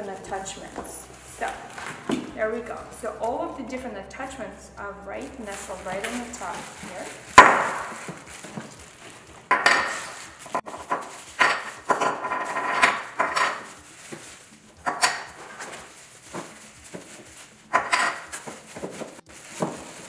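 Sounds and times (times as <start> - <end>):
plastic bags crinkling: 5.2 - 20.0
plastic parts knocking on counter: 17.7 - 19.0.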